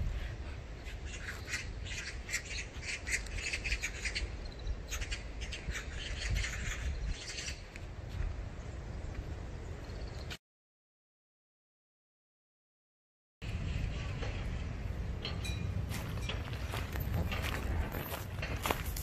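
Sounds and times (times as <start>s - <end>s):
birds chirping and squawking: 0.1s - 7.8s.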